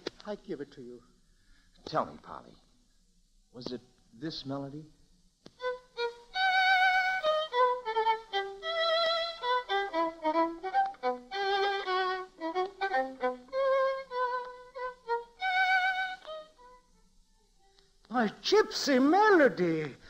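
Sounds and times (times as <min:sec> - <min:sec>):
solo violin melody: 0:05.6 - 0:17.9.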